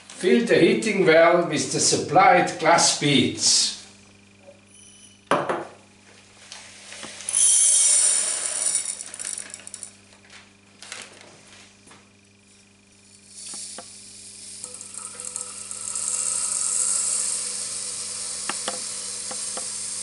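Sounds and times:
glass beads pouring into beaker: 0:07.3 - 0:09.9, 0:13.1 - 0:20.0.

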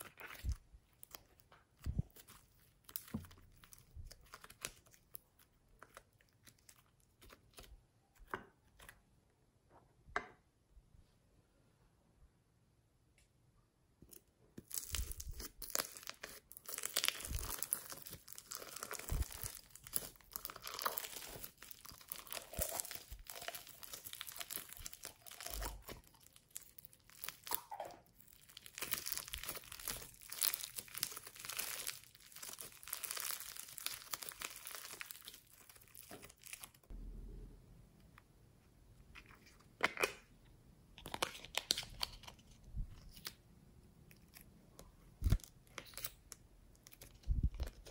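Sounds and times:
foam beads crunching in slime: 0:14.6 - 0:36.9.

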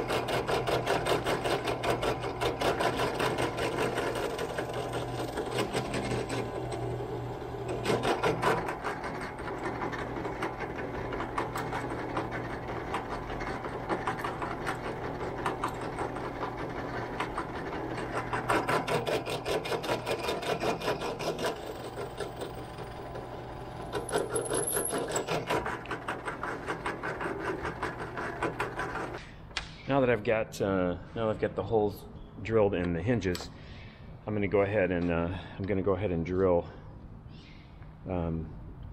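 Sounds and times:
drill bit boring through wood: 0:00.0 - 0:29.2
drill press motor hum: 0:00.0 - 0:29.3.

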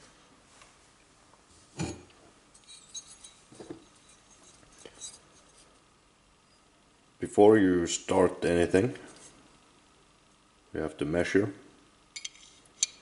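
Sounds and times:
faint metallic clinks: 0:01.8 - 0:05.6, 0:12.2 - 0:13.0.

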